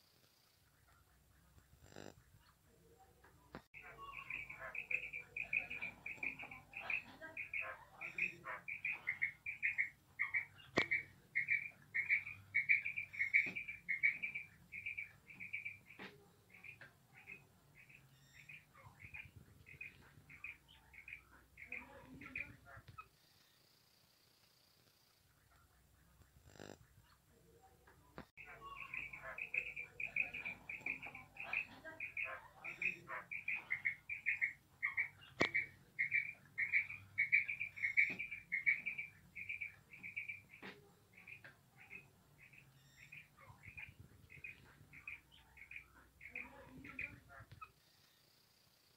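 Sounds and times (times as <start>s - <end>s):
quail calling: 3.8s - 23.1s, 28.4s - 47.8s.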